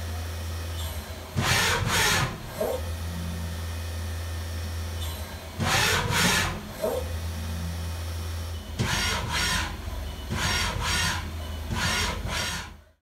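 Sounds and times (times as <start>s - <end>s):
servo whines: 8.6s - 12.8s.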